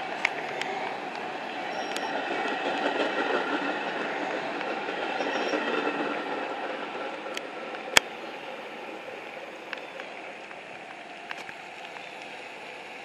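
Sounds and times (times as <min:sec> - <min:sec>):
train rushing down the track: 0:00.0 - 0:13.0
faint ticks: 0:09.2 - 0:12.4.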